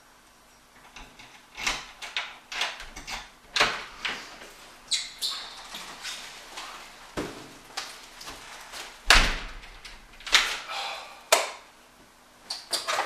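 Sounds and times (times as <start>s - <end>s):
front door slamming: 9.1s - 10.5s.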